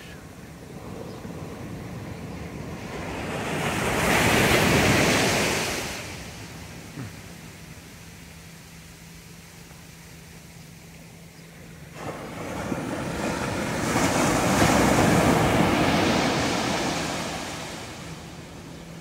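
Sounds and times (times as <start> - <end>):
wave breaking on beach: 0.7 - 7.4, 11.9 - 18.8.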